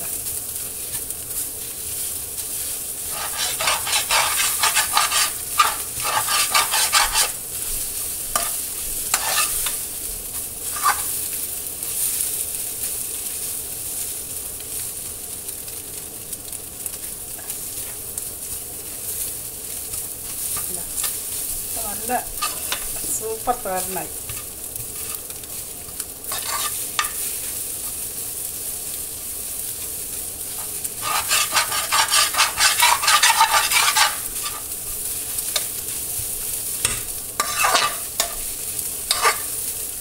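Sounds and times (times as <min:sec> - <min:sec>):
food sizzling in frying pan: 0:00.0 - 0:40.0
spatula scraping pan: 0:03.0 - 0:11.3, 0:19.9 - 0:25.4, 0:26.2 - 0:28.1, 0:30.4 - 0:39.9.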